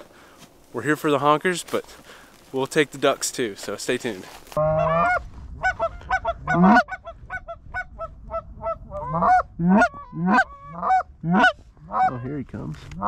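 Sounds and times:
goose honking: 4.6 - 12.4.

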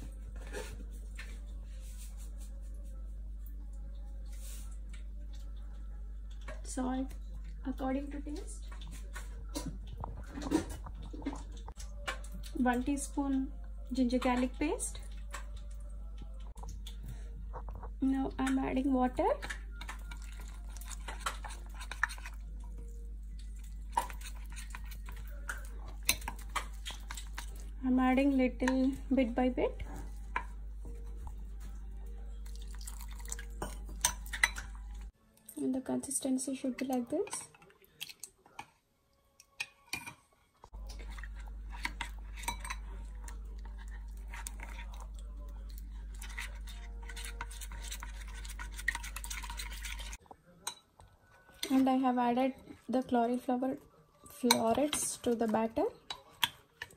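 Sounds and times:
spoon stirring batter in bowl: 0.1 - 35.2, 36.3 - 38.8, 39.4 - 56.9
spoon scraping batter in glass bowl: 19.4 - 22.9, 23.5 - 27.7, 40.8 - 50.8, 54.3 - 56.9.

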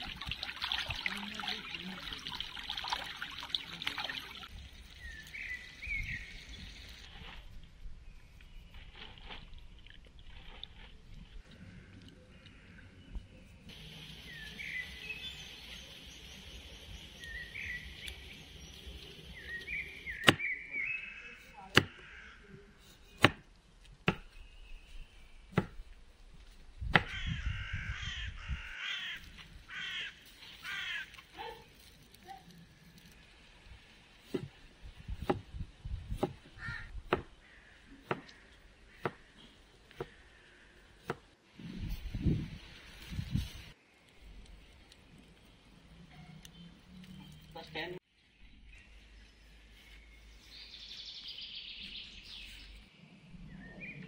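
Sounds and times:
birds chirping: 3.2 - 7.0, 11.6 - 23.3, 43.8 - 54.0
crows cawing: 21.8 - 22.4, 27.0 - 31.2, 36.6 - 39.4
knife chopping on wooden board: 23.2 - 23.4.

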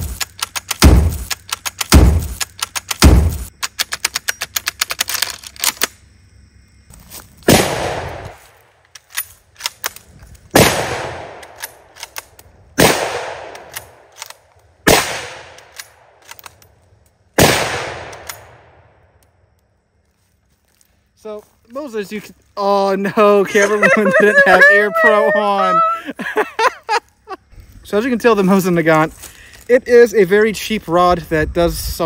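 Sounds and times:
metallic clicks of loading rifle: 0.0 - 6.0, 8.8 - 10.5, 11.4 - 12.6, 13.5 - 14.7, 15.6 - 17.2, 18.1 - 18.5
rifle shots echoing: 7.5 - 8.4, 10.5 - 12.1, 12.8 - 14.2, 14.8 - 16.3, 17.4 - 19.0.

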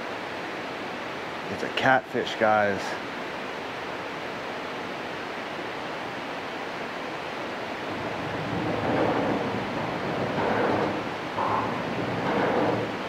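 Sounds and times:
spillway water rushing: 0.0 - 13.0.

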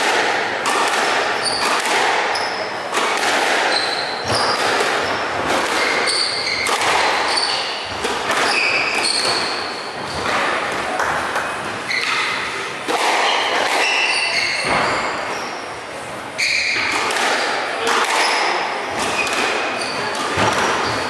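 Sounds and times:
squash ball hits: 0.0 - 15.2, 16.8 - 21.0
shoes squeaking on wooden floor: 5.8 - 7.9, 8.5 - 10.4.

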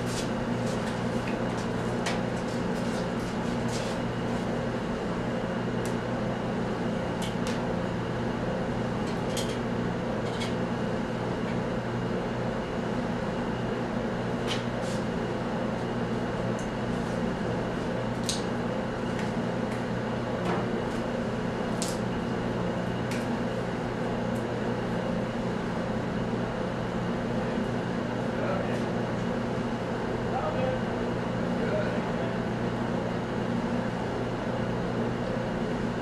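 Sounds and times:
low mechanical hum: 0.0 - 36.0.

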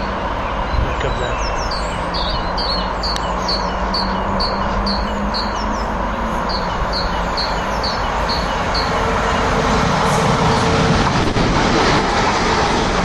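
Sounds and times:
train rumble: 0.0 - 13.0
train whine: 0.0 - 13.0
small bird chirping: 0.7 - 9.0.

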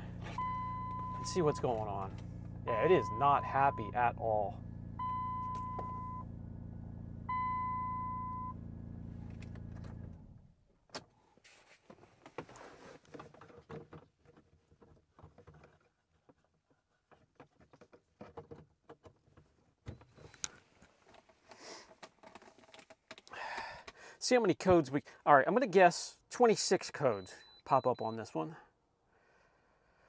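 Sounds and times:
car engine idling: 0.0 - 10.5
dashboard chime: 0.3 - 2.1, 2.7 - 4.2
cable plugging clicks and rustling: 17.1 - 24.0.

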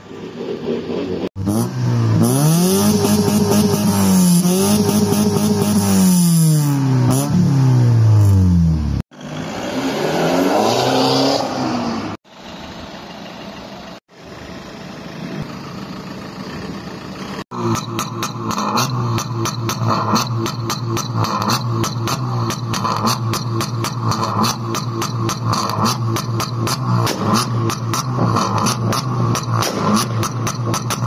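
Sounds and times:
car engine revving: 1.3 - 12.2, 17.2 - 31.0.

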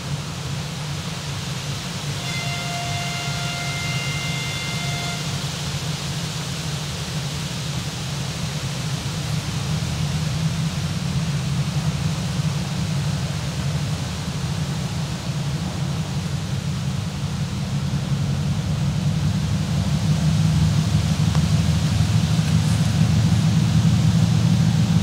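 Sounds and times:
diesel locomotive engine rumble: 0.0 - 25.0
high steady horn tone: 2.0 - 6.2, 21.3 - 24.6.

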